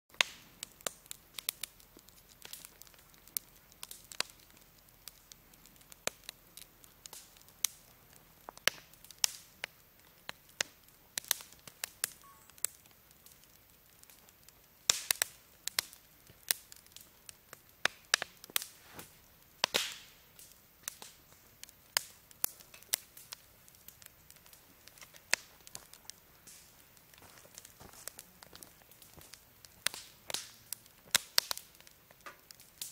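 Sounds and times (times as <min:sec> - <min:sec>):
campfire crackling: 0:00.1 - 0:32.9
sharp snaps and pops of fire: 0:00.1 - 0:32.9.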